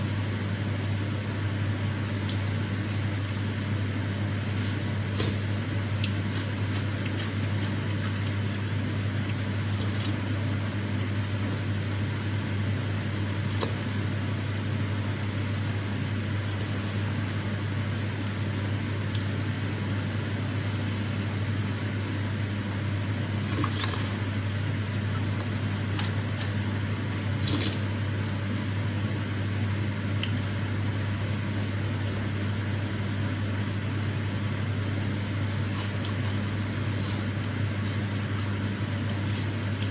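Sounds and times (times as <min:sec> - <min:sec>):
steady low hum: 0:00.0 - 0:39.9
wet slurping and chewing: 0:04.5 - 0:10.2, 0:23.4 - 0:24.3, 0:27.4 - 0:27.9, 0:35.4 - 0:39.9.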